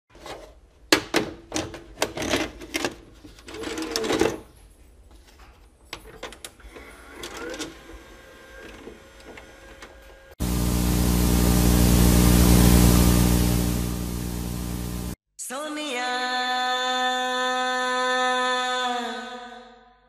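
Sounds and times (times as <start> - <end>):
short rising whine: 10.4 - 15.2.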